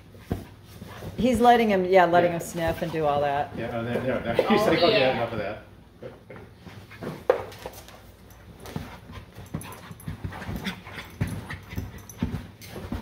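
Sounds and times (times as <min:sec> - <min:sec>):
puppies scuffling: 0:06.6 - 0:13.0
puppies panting: 0:08.4 - 0:13.0.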